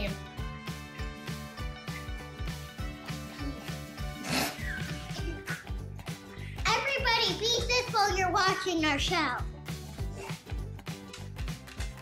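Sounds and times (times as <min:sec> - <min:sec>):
music with steady beat: 0:00.0 - 0:08.1.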